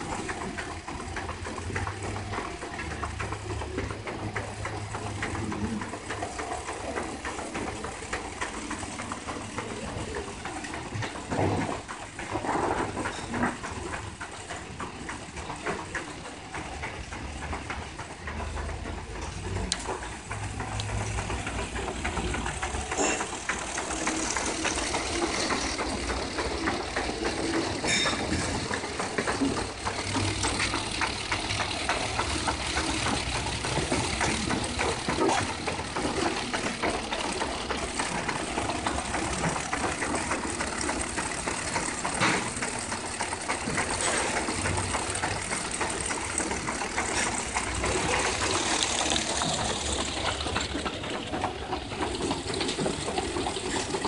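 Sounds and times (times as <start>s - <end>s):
machine hum: 0.0s - 54.0s
rapid ticking: 13.1s - 54.0s.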